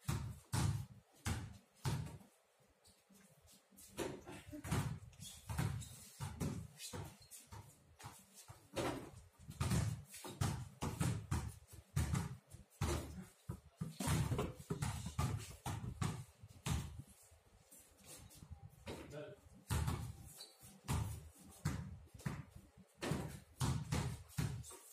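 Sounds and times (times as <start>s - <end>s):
basketballs bouncing on pavement: 0.0s - 2.2s, 4.6s - 17.0s, 19.7s - 24.9s.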